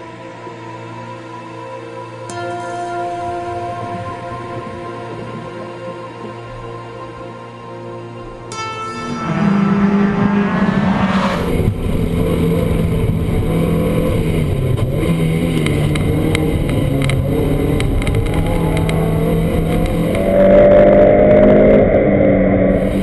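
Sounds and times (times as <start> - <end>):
car engine accelerating: 8.7 - 23.0.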